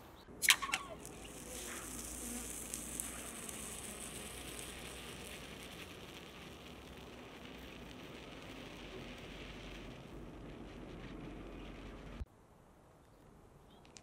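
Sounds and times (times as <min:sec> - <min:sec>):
faint high hiss: 0:00.4 - 0:14.0
small clicks: 0:13.8 - 0:14.0.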